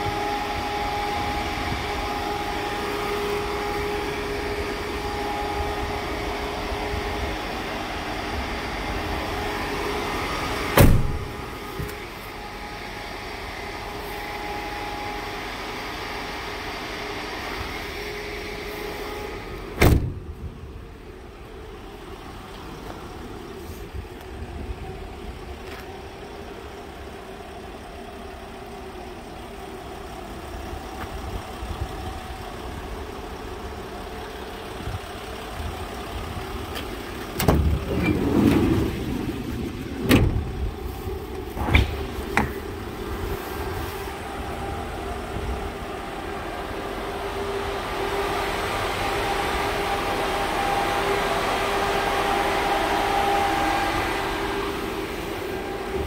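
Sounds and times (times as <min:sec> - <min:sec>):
door shutting thud: 0:10.8 - 0:12.0, 0:19.8 - 0:20.2.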